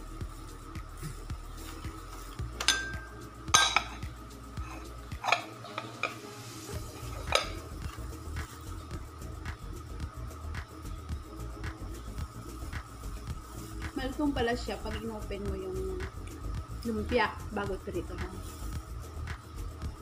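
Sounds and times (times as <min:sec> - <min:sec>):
faint background music: 0:00.0 - 0:20.0
dishes clinking on ceramic plate: 0:02.6 - 0:04.1, 0:04.7 - 0:06.2, 0:07.2 - 0:07.7.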